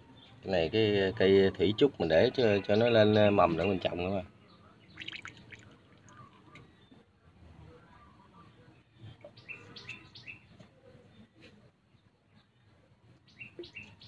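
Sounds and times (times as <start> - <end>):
small bird chirping: 7.9 - 11.2, 12.0 - 14.0.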